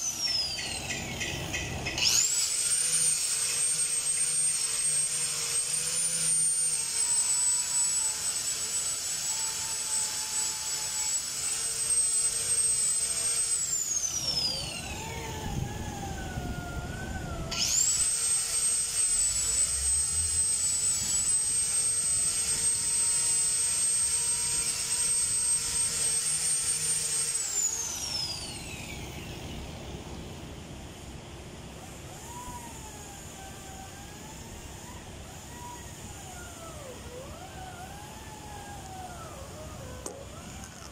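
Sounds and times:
angle grinder whining: 0.0 - 30.4, 31.7 - 40.9.

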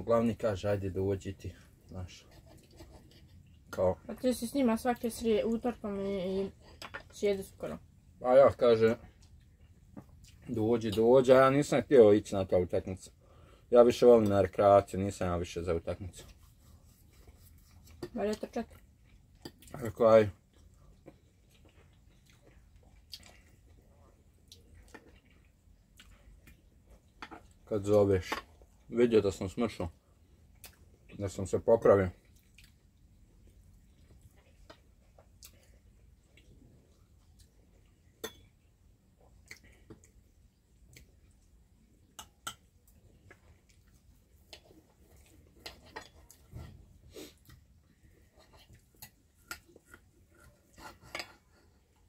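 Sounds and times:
cutlery clinking on plates: 38.2 - 38.5.

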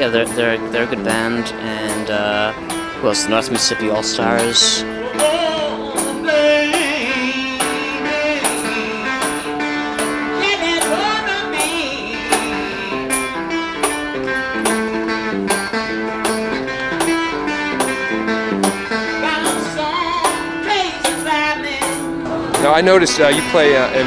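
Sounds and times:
man singing blues: 0.0 - 13.6, 22.5 - 24.0
fingerpicked guitar: 0.0 - 24.0.

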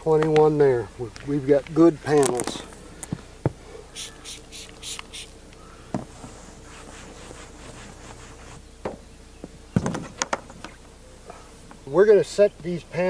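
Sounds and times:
spray bottle squirting: 4.0 - 5.4
cloth rubbing over roof: 6.1 - 8.6.

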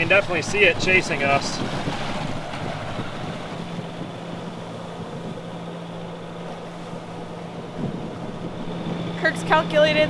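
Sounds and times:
wind and water rushing: 0.0 - 10.0
low hum: 0.8 - 10.0.

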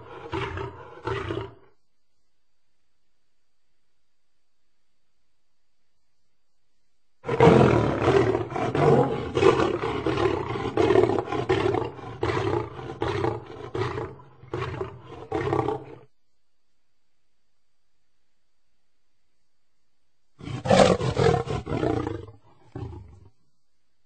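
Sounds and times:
lion roaring: 0.0 - 1.7, 7.2 - 16.1, 20.4 - 23.4.

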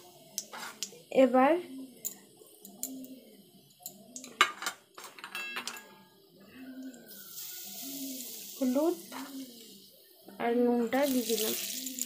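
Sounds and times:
steady hiss: 6.4 - 12.0.

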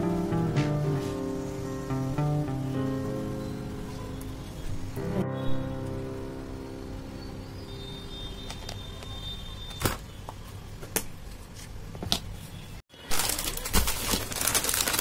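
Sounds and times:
plastic bag crinkling: 13.0 - 15.0.

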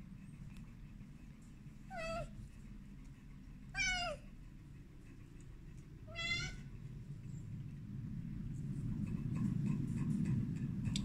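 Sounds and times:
kitten meowing: 6.1 - 6.6.

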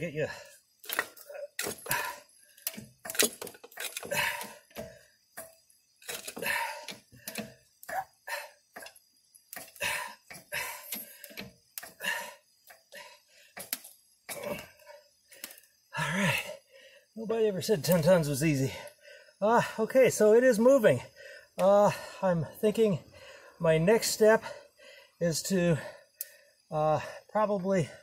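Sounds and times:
metallic clicks and clinks: 2.6 - 7.5.

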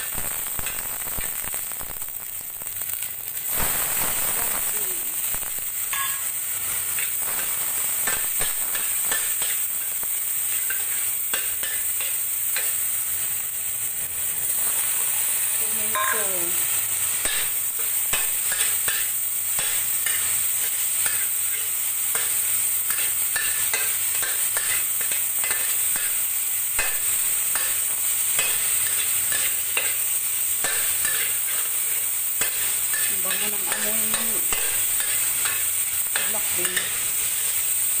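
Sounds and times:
food sizzling in hot oil: 0.0 - 38.0
metal spatula scraping a wok: 5.9 - 13.1, 17.0 - 26.2, 26.8 - 37.5.

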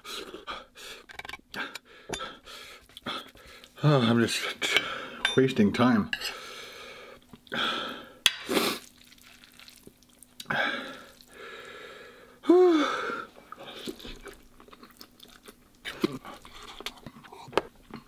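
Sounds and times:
man chewing: 2.3 - 3.8, 8.4 - 11.8, 13.4 - 18.0.

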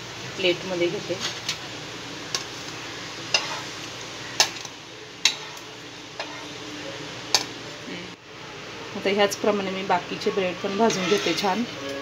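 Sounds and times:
faint sizzle from hot pan: 0.0 - 12.0
metal spatula tapping pan: 4.4 - 5.6.

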